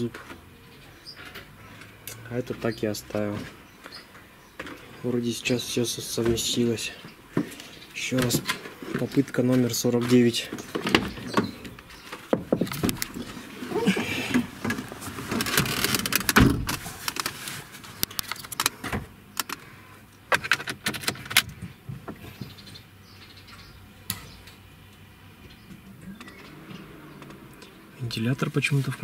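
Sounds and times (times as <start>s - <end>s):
rustling: 6.6s - 18.9s.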